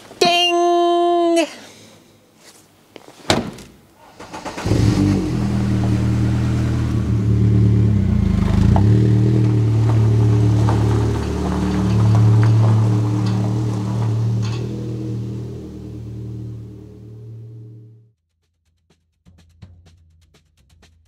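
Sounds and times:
car engine running: 4.6s - 18.0s.

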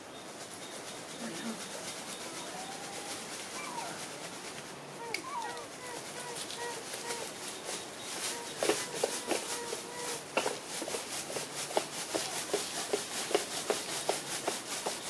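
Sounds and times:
fast pulsing hiss: 0.0s - 15.0s
light taps and rustling: 7.7s - 15.0s.

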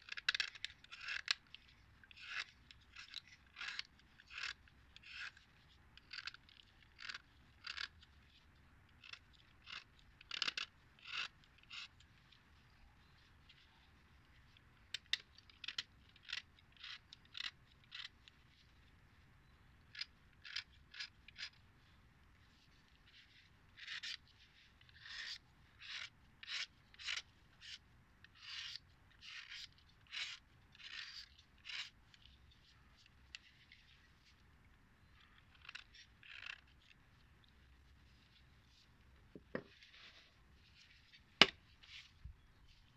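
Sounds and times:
knife blade scraping chalk: 0.0s - 8.4s, 9.0s - 12.1s, 14.9s - 18.4s, 19.8s - 21.6s, 22.6s - 34.1s, 35.0s - 37.0s.

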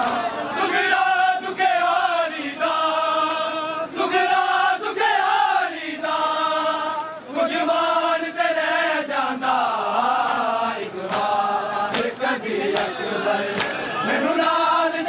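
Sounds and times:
men chanting a lament: 0.0s - 15.0s
chest-beating slaps: 11.1s - 12.2s, 12.8s - 14.6s.

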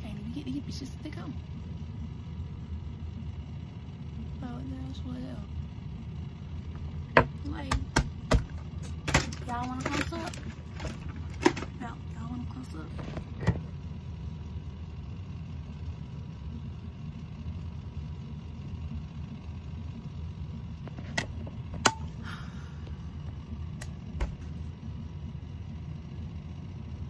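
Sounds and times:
low room noise rumble: 0.0s - 27.0s.

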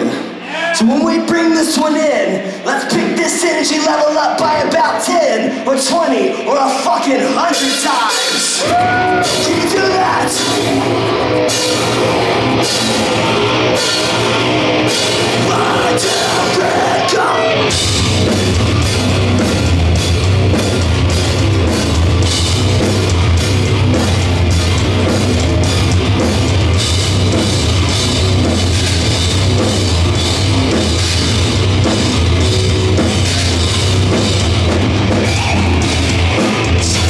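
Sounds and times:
heavy metal band playing live: 0.0s - 37.0s
drum and cymbal hits: 7.4s - 37.0s.

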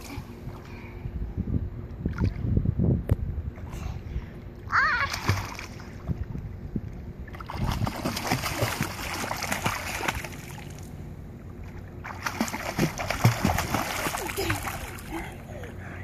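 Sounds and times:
child splashing in pool: 4.8s - 5.9s, 7.3s - 10.8s, 12.0s - 15.4s.

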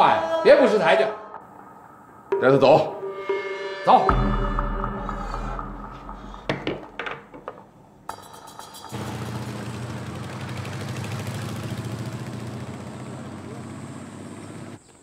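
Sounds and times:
sharp knocks: 4.1s - 9.0s
motorcycle engine running: 8.1s - 14.8s.

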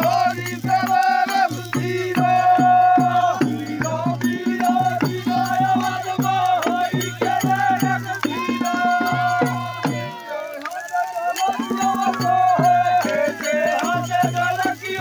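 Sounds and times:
hands clapping: 0.0s - 2.7s, 3.4s - 15.0s
barrel drum beating: 0.0s - 10.2s
men singing folk song: 0.0s - 15.0s.

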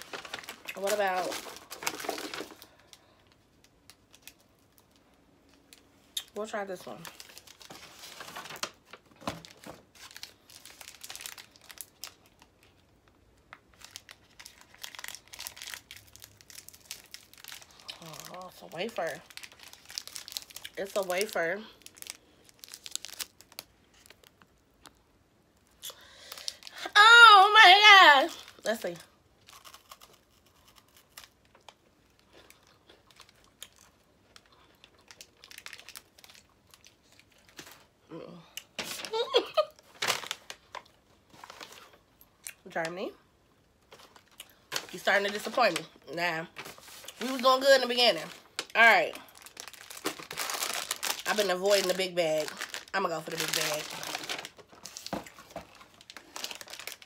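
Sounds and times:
snack wrapper crinkling and tearing: 0.0s - 26.8s, 29.4s - 38.0s, 38.6s - 42.6s, 43.7s - 45.8s, 46.6s - 57.0s
crunching and chewing: 19.2s - 20.8s, 29.4s - 37.8s.

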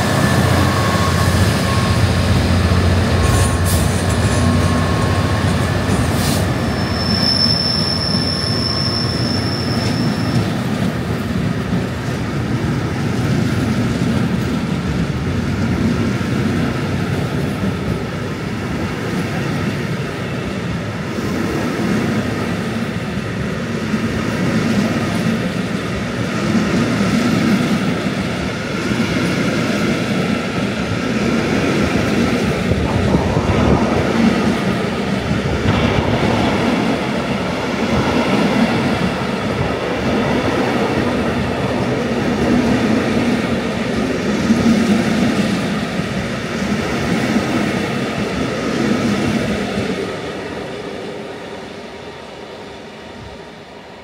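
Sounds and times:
freight train wheels on rails: 0.0s - 54.0s.

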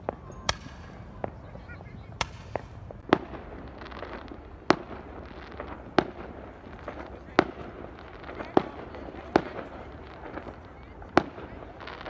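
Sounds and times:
fireworks bangs: 0.0s - 12.0s
fireworks crackling: 0.0s - 12.0s.

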